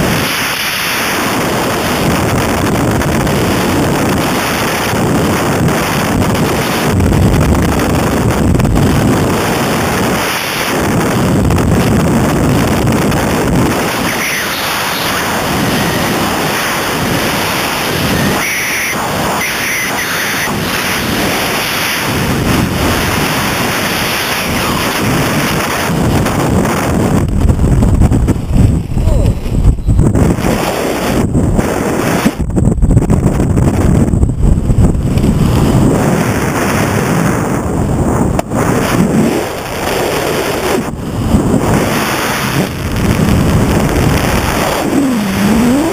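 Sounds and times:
freefall wind rushing: 0:00.0 - 0:45.9.

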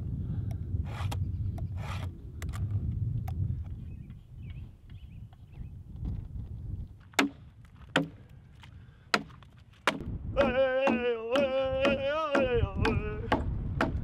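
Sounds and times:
axe chopping into log: 0:07.1 - 0:08.2, 0:09.1 - 0:14.0.

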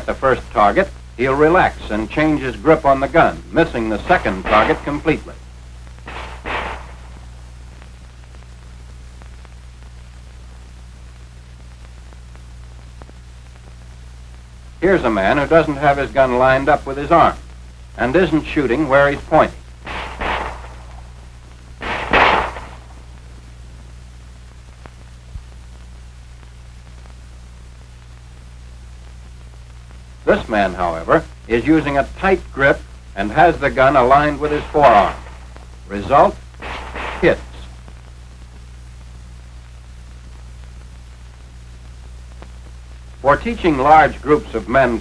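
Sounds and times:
film soundtrack hum and hiss: 0:00.0 - 0:45.0
muffled pistol shot: 0:04.0 - 0:05.2, 0:06.1 - 0:07.4, 0:19.9 - 0:21.2, 0:21.8 - 0:23.2, 0:34.6 - 0:35.6, 0:36.6 - 0:37.7.

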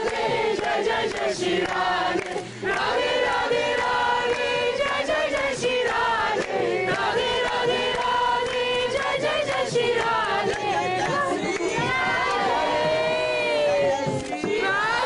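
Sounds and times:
group singing in chorus: 0:00.0 - 0:15.0.

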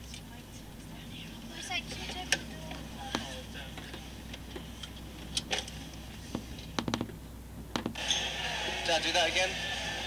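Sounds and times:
low steady hum: 0:00.0 - 0:08.8.

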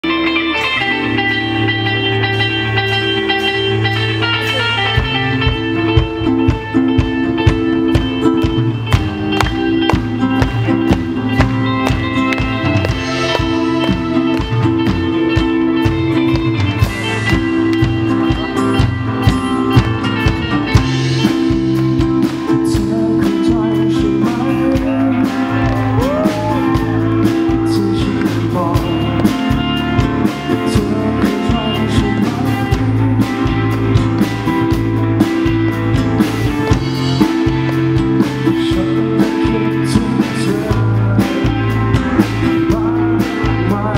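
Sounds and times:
live band music: 0:00.0 - 0:43.9
man singing into a microphone: 0:22.4 - 0:33.7, 0:38.1 - 0:43.9.

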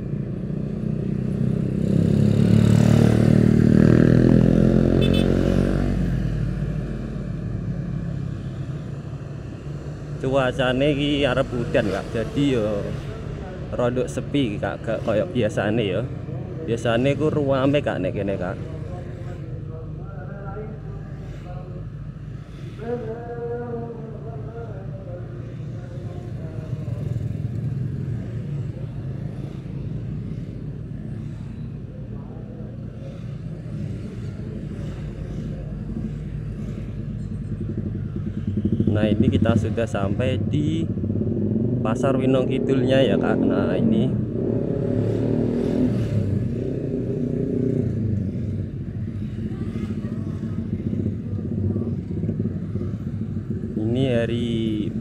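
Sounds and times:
motorbikes in street traffic: 0:00.0 - 0:55.0
motorcycle engine running: 0:33.4 - 0:41.9, 0:44.8 - 0:55.0.

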